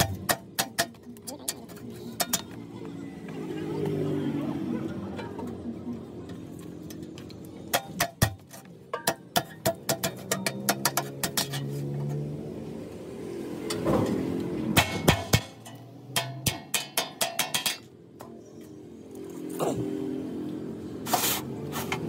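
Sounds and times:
hammer tapping steel sheet: 14.8s - 17.9s.

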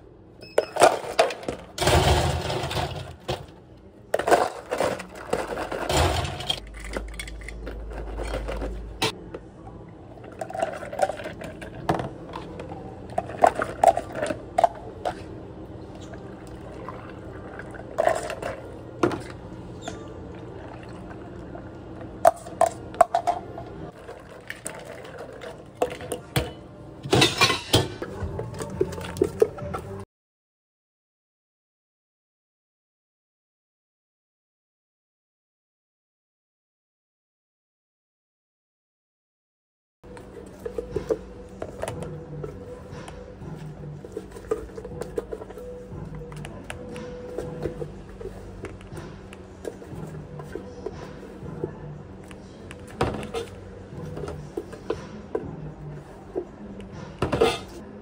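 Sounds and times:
low steady hum: 0.0s - 30.0s
ice clattering in plastic cups: 4.2s - 9.1s, 10.2s - 15.2s, 16.5s - 19.4s, 23.9s - 26.5s.

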